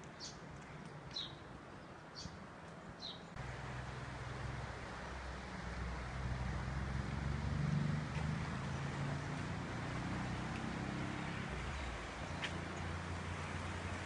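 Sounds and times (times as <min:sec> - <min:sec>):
outdoor background noise: 0:00.0 - 0:14.0
vehicle engine rumble: 0:00.0 - 0:14.0.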